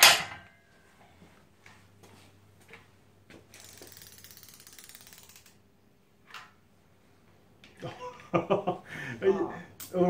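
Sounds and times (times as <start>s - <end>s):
ratchet wrench clicking: 3.6s - 5.6s.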